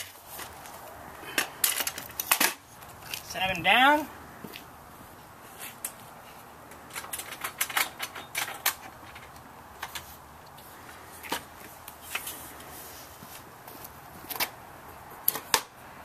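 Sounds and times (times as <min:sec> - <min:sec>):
metal rails clicking and clattering: 0:06.7 - 0:10.1.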